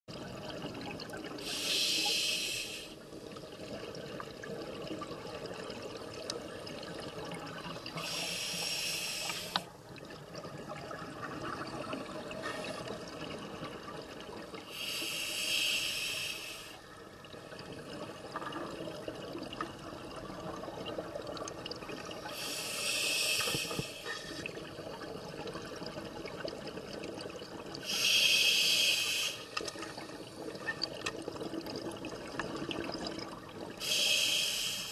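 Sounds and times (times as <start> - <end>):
low underwater noise: 0.1 - 34.9
exhaled bubbles underwater: 3.0 - 15.0, 16.8 - 28.0, 29.0 - 34.3.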